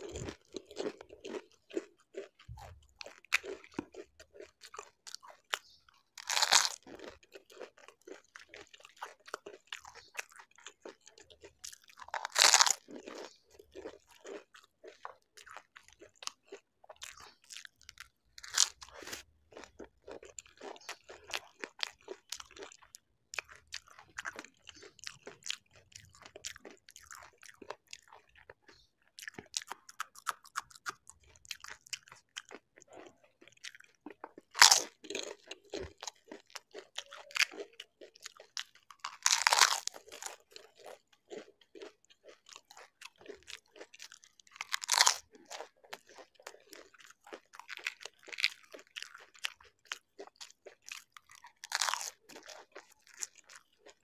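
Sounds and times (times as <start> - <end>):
chewing: 0.0 - 54.0
crisp shells crunched in mouth: 6.2 - 7.1, 12.0 - 13.2.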